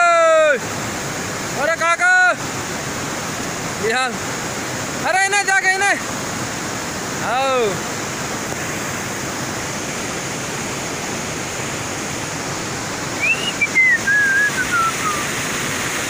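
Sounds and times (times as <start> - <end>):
river rushing over rocks: 0.0 - 16.0
thin falling whistle: 13.2 - 15.4.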